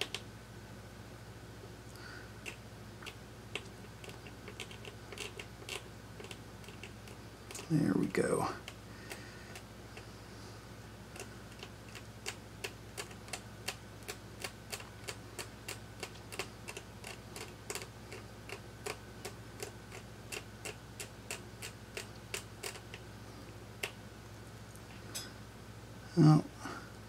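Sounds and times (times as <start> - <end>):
faint low hum: 0.0 - 27.0
blade scraping ticks: 2.4 - 9.6, 11.1 - 23.0.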